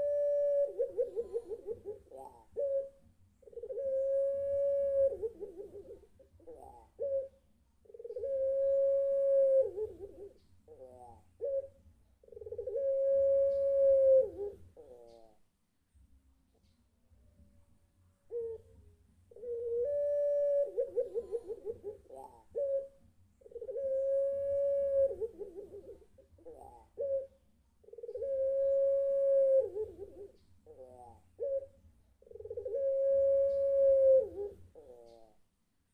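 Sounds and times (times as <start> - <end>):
dove cooing: 0.0 - 15.4, 18.3 - 35.5.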